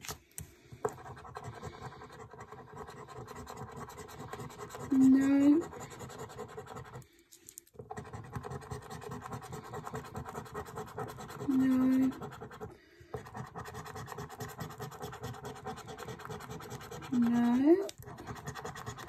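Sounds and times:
coin scraping scratchcard: 0:07.8 - 0:19.0.

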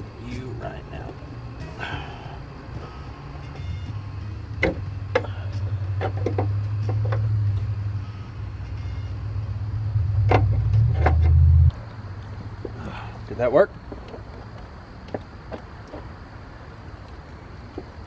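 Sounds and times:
sharp clicks and knocks: 0:06.0 - 0:07.7, 0:10.2 - 0:11.8.

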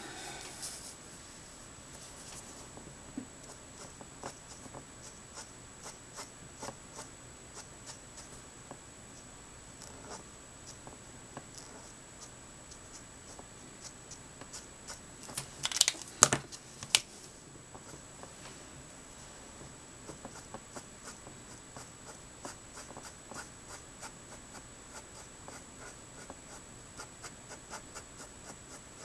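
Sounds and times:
marker scratching on paper: 0:03.5 - 0:08.4, 0:20.1 - 0:29.0.

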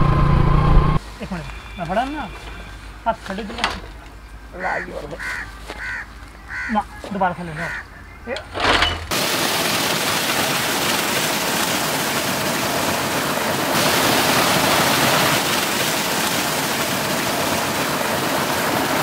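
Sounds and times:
water pouring into a tank: 0:09.1 - 0:19.0.

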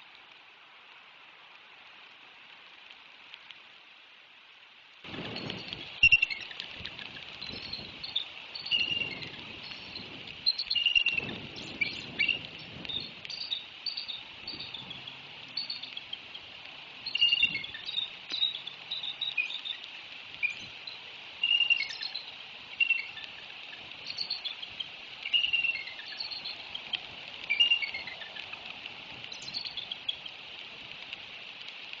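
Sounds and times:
insects humming: 0:05.1 - 0:28.6
birds chirping: 0:05.3 - 0:28.6, 0:29.2 - 0:30.4.

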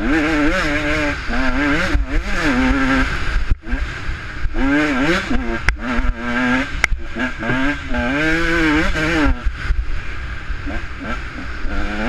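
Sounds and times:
dirt bike engine revving: 0:00.0 - 0:12.0
sharp ticks: 0:05.5 - 0:07.8.

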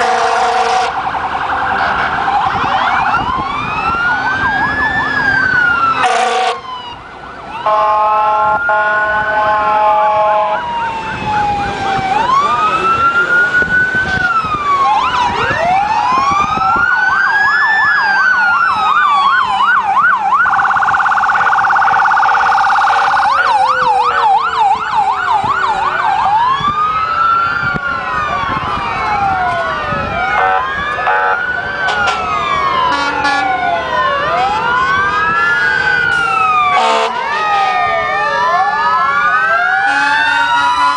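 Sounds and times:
sirens wailing and yelping: 0:00.0 - 0:40.9
horn chord: 0:06.0 - 0:06.6.

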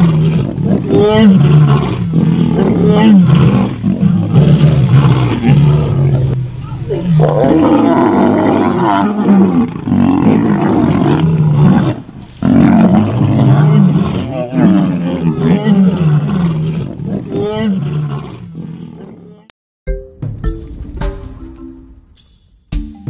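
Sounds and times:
lions roaring: 0:00.0 - 0:19.5.

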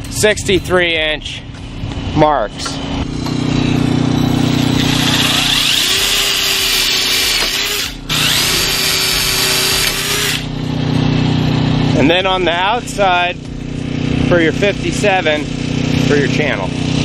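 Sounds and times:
cordless drill drilling into steel: 0:04.6 - 0:10.5.

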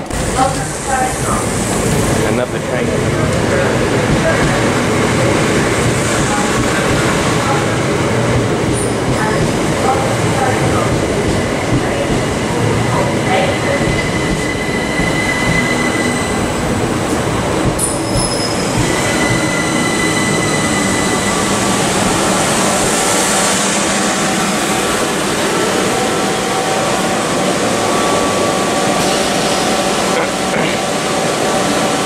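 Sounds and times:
train wheels rumbling on rail: 0:00.0 - 0:32.0
wheels and brakes squealing: 0:17.8 - 0:21.5.

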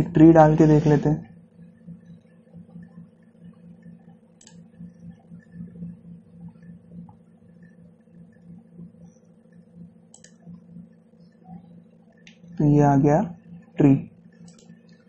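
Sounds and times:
low pulsing hum: 0:00.0 - 0:15.0
computer mouse clicks: 0:02.0 - 0:05.7, 0:06.4 - 0:12.5, 0:14.3 - 0:15.0.

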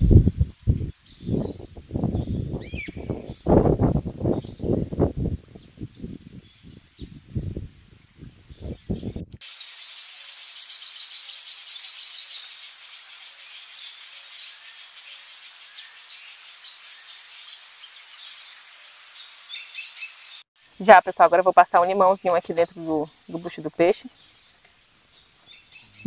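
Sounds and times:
insects chirping trill: 0:00.0 - 0:26.0
bird chirps: 0:00.5 - 0:03.5, 0:08.5 - 0:20.4, 0:22.0 - 0:26.0.

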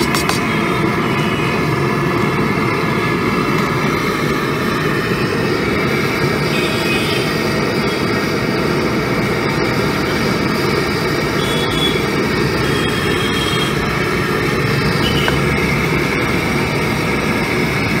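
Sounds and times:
gas burner roaring: 0:00.0 - 0:18.0.

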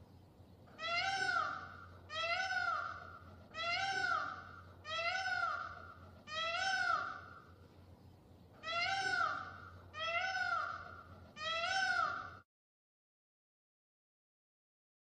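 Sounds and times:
peacock calling: 0:00.7 - 0:07.6, 0:08.6 - 0:12.4.

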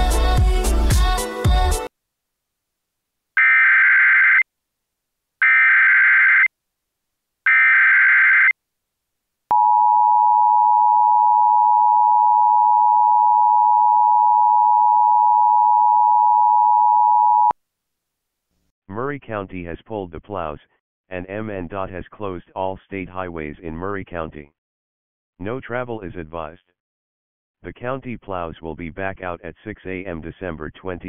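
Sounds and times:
steady attention tone: 0:09.5 - 0:17.5.

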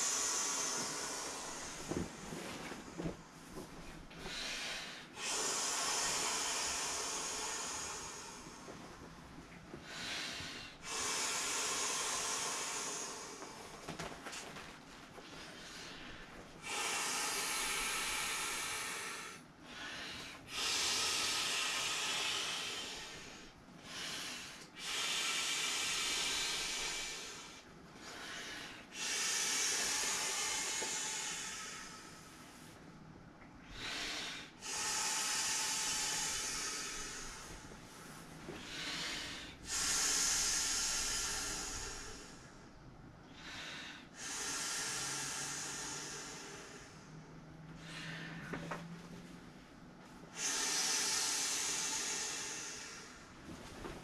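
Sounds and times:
hissing exhalations into valve: 0:00.0 - 0:03.3, 0:04.2 - 0:08.8, 0:10.0 - 0:14.0, 0:16.6 - 0:19.4, 0:28.9 - 0:32.4, 0:33.6 - 0:37.7, 0:38.5 - 0:42.5, 0:43.4 - 0:47.2, 0:50.3 - 0:54.0
breath drawn in: 0:00.0 - 0:32.8, 0:33.6 - 0:42.7, 0:50.3 - 0:54.0.

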